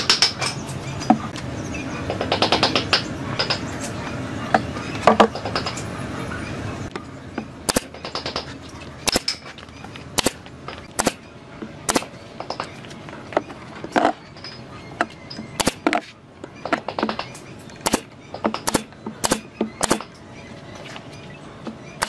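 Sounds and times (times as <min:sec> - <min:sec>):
nail gun firing into wood: 0:07.7 - 0:08.3, 0:10.2 - 0:10.4, 0:11.0 - 0:11.2, 0:11.9 - 0:12.1, 0:15.6 - 0:16.0, 0:17.8 - 0:20.1.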